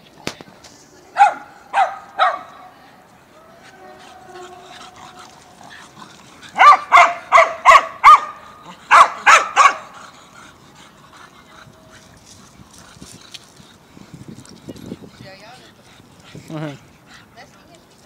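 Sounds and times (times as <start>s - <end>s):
dog barking: 1.2s - 2.5s, 6.6s - 10.0s.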